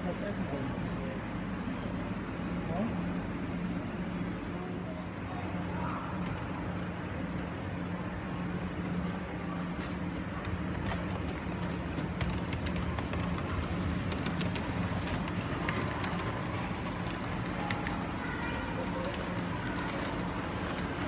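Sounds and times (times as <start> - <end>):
steady low hum: 0.0 - 21.0
model train wheels clicking on track: 5.6 - 21.0.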